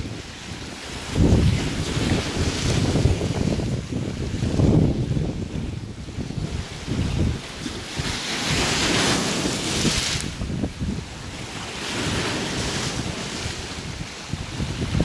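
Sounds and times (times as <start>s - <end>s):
wind rumble on microphone: 0.0s - 15.0s
small waves breaking on rocks: 6.2s - 15.0s.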